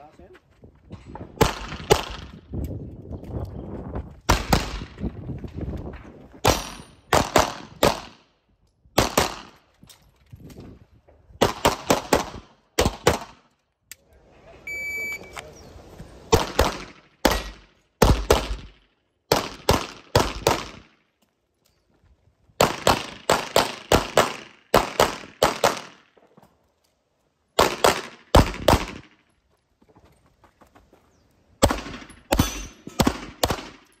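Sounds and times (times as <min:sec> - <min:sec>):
pistol shots ringing: 0:16.3 - 0:18.7, 0:31.6 - 0:33.9.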